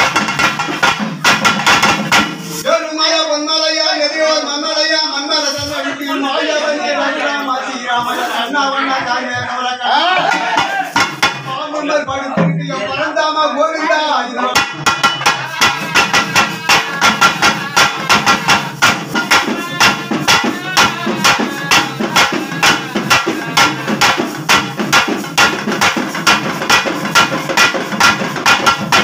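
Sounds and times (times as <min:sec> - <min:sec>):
drums beaten with sticks: 0:00.0 - 0:03.9, 0:08.9 - 0:13.1, 0:14.4 - 0:29.0.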